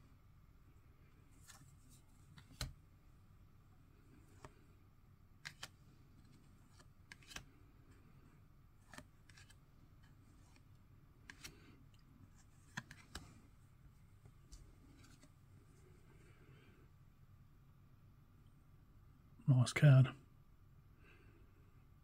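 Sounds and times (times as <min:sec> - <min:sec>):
cards clicking and snapping: 0:02.3 - 0:02.8, 0:05.4 - 0:07.6, 0:08.8 - 0:10.6, 0:11.2 - 0:11.6, 0:12.3 - 0:13.3.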